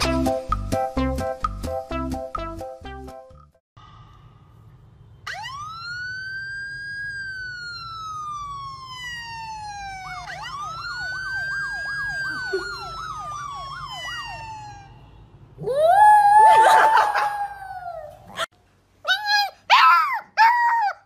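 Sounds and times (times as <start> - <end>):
emergency vehicle siren wailing: 5.2 - 17.9
siren yelp: 5.2 - 17.9.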